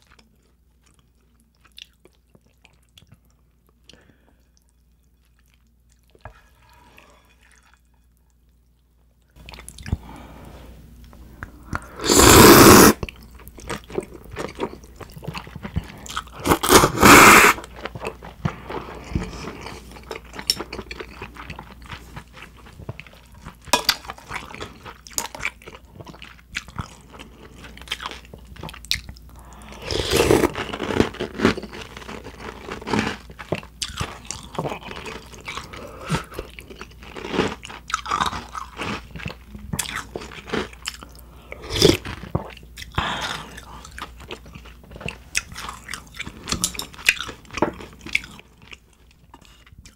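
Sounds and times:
wet chewing and crunching: 0:00.0 - 0:04.0, 0:13.0 - 0:49.9
noodle slurping: 0:11.8 - 0:13.0, 0:16.4 - 0:17.7.

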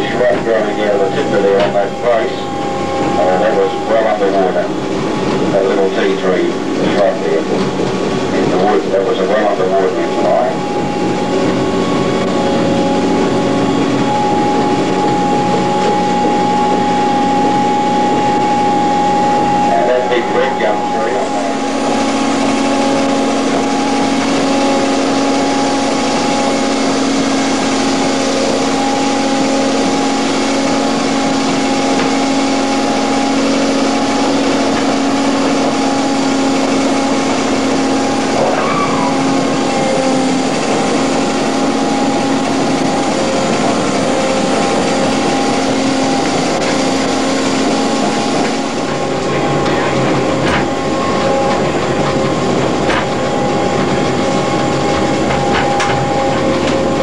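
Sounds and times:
rushing noise: 0:00.0 - 0:57.0
tram engine drone: 0:00.0 - 0:57.0.

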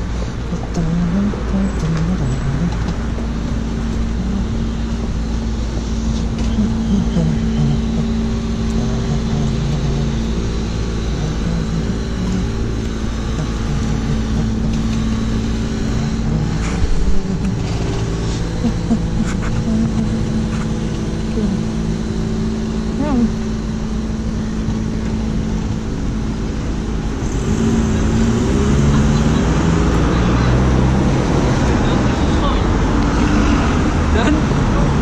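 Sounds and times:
road traffic rumble: 0:00.0 - 0:35.0.

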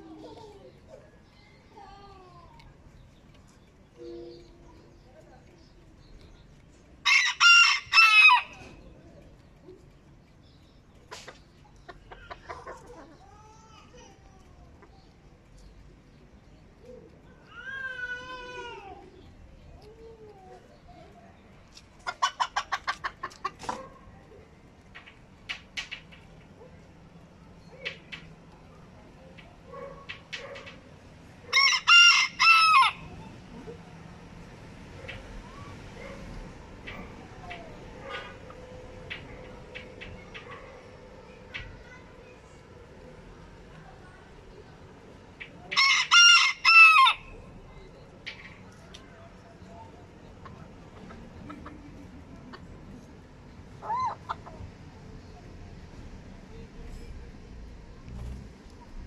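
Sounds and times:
rooster crowing: 0:07.0 - 0:08.6, 0:31.5 - 0:33.0, 0:45.8 - 0:47.3
chicken clucking: 0:10.9 - 0:13.3, 0:21.7 - 0:24.4, 0:50.3 - 0:53.0, 0:53.7 - 0:54.7
soft clucks: 0:10.9 - 0:13.3, 0:21.7 - 0:26.7, 0:34.9 - 0:41.8, 0:48.0 - 0:53.1, 0:53.7 - 0:54.9.

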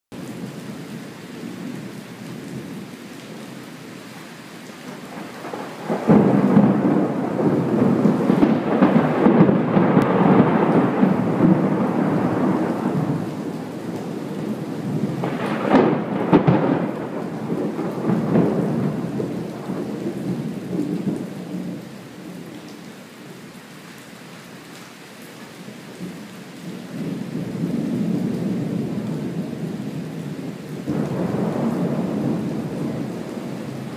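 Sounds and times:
steady rain: 0:00.1 - 0:33.9
thunder rumbling: 0:04.9 - 0:21.8, 0:26.7 - 0:33.9.

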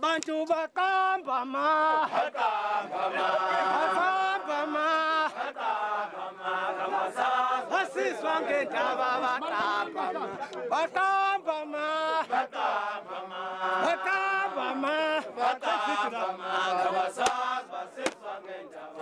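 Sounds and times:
men chanting: 0:00.0 - 0:19.0
men shouting phrases: 0:07.7 - 0:12.2.

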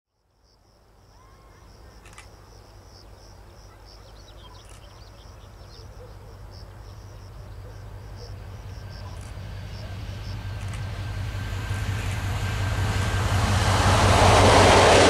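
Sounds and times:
crickets chirring: 0:00.4 - 0:13.6
bird chirps: 0:03.8 - 0:06.2
diesel locomotive rumble: 0:06.7 - 0:15.0.

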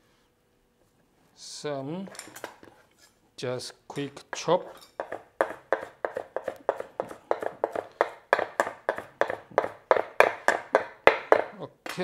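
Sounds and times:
knife chopping on wooden board: 0:04.3 - 0:11.6.

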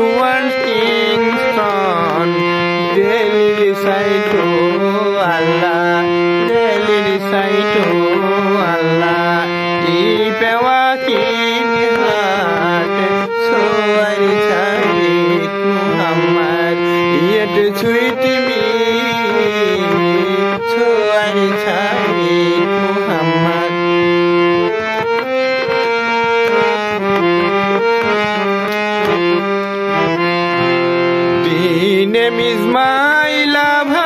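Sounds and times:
harmonium playing slow melody: 0:00.0 - 0:34.0.

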